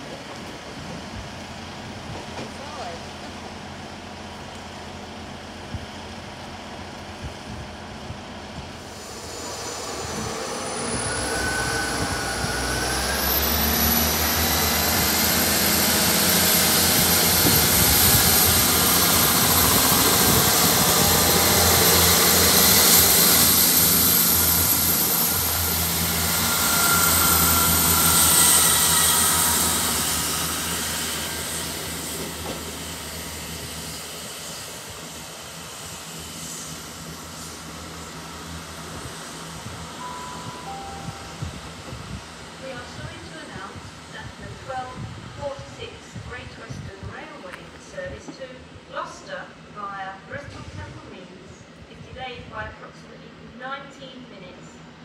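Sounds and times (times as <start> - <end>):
diesel train engines accelerating: 0.0 - 55.0
high squeals: 8.9 - 33.9.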